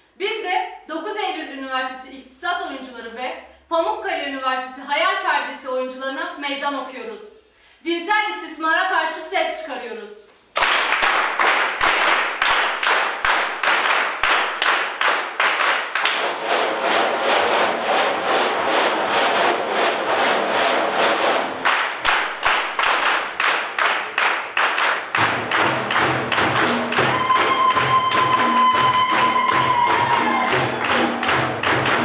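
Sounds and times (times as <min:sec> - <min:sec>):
group clapping in rhythm: 0:10.5 - 0:32.0.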